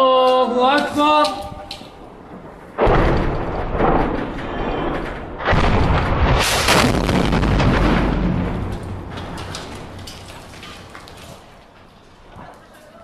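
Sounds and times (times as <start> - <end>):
artillery blasts: 2.0 - 10.6.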